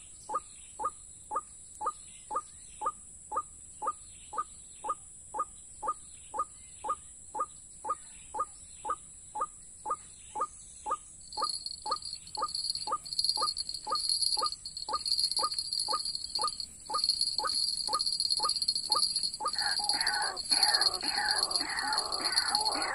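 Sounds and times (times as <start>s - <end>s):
bird calling: 11.4s - 22.9s.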